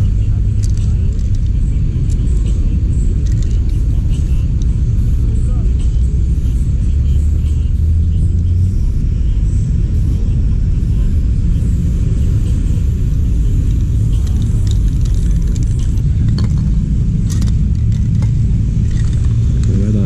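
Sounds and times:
low rumble: 0.0s - 20.0s.

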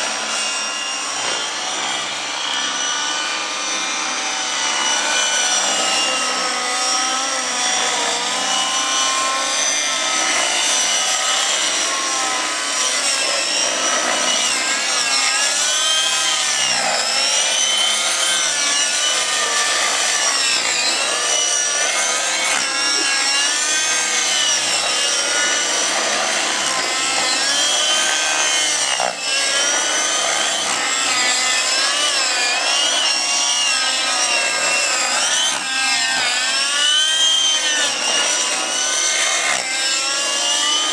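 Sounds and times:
model helicopters buzzing whine: 0.0s - 40.9s.

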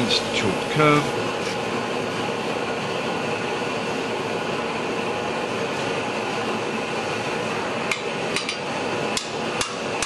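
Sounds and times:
propane torch roaring: 0.0s - 10.0s.

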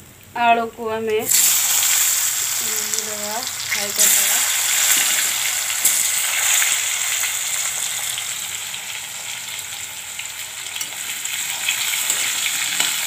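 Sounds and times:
potatoes deep-frying in oil: 0.3s - 13.0s
spatula stirring in oil: 1.3s - 6.9s.

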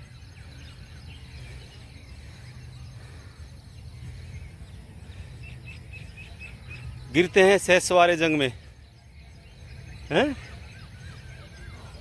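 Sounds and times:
steady low rumble: 0.0s - 7.5s
faint bird chirps: 0.0s - 12.0s.

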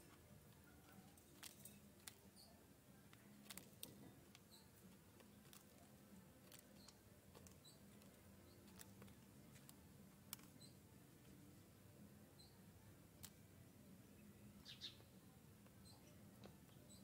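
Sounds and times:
beak tapping on seed and plastic: 0.8s - 10.8s
faint high bird chirps: 10.5s - 10.8s, 12.3s - 12.6s, 14.0s - 17.0s.

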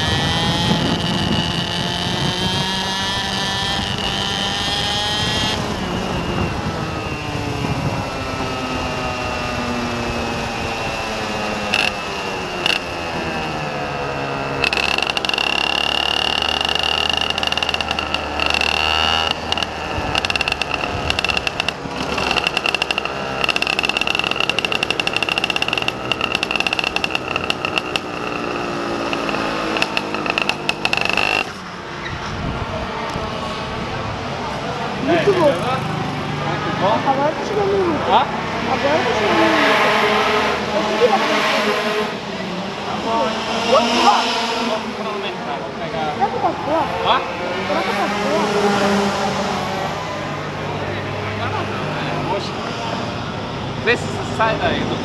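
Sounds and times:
motorcycle engine revving: 0.0s - 55.0s
steady high whine: 5.5s - 31.8s.

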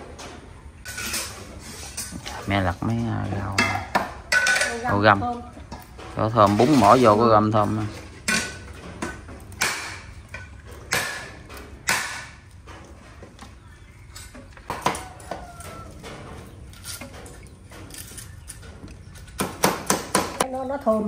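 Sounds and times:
cookware knocking and clattering: 3.2s - 6.9s, 7.9s - 11.9s.

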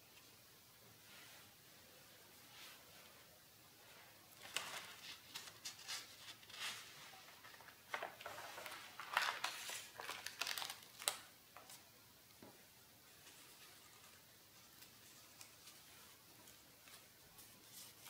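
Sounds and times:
paper pages rustling: 4.3s - 11.9s.

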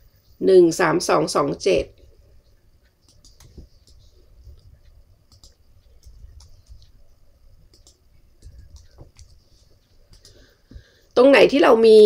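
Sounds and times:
mouse clicks: 2.9s - 7.0s, 7.7s - 9.4s, 10.1s - 10.9s
computer keyboard keystrokes: 3.0s - 4.0s, 5.3s - 7.0s, 7.7s - 9.4s, 10.1s - 10.4s.

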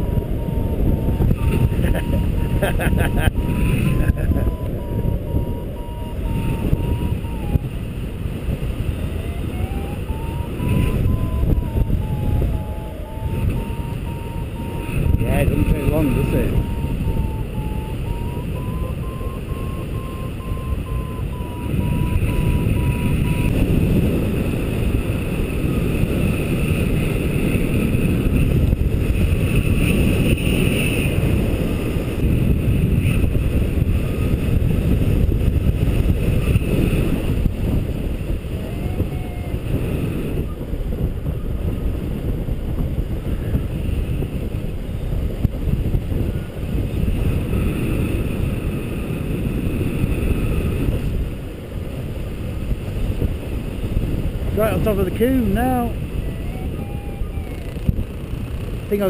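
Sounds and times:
variometer beeping: 0.0s - 7.8s, 8.9s - 23.7s
wind buffeting microphone: 0.0s - 59.0s.

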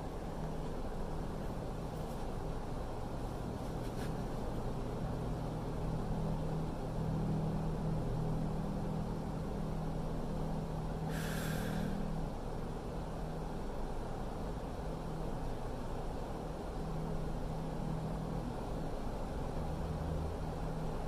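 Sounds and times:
low machine hum: 0.0s - 21.0s
short hiss: 11.1s - 12.0s.

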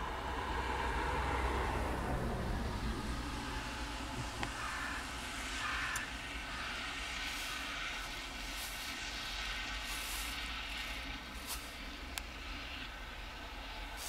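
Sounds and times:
low rumble: 0.0s - 14.0s
even hiss: 3.3s - 14.0s.

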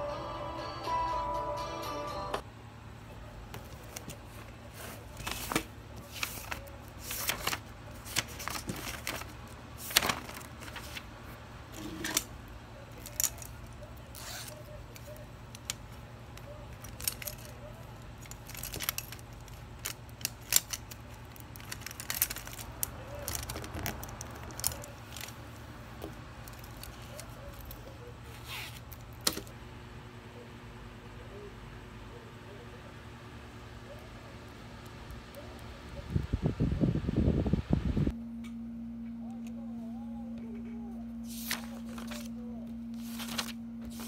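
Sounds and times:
faint steady hum: 0.0s - 44.0s
pens rattling in pencil pouch: 18.2s - 25.4s.

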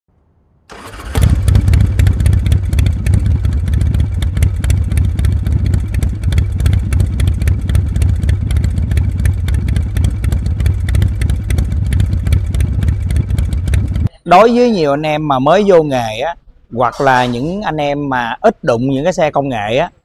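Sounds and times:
motorcycle engine running: 0.7s - 14.1s.

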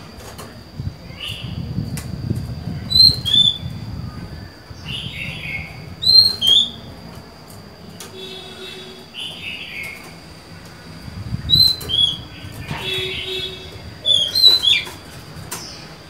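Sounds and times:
bird whistled calls: 2.8s - 3.8s, 4.8s - 6.9s, 11.4s - 15.0s.

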